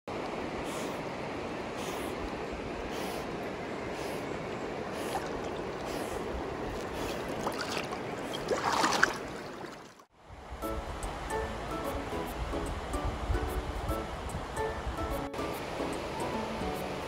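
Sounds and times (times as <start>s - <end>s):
water splashing around swimming dog: 4.8s - 10.1s
background music: 10.6s - 17.0s.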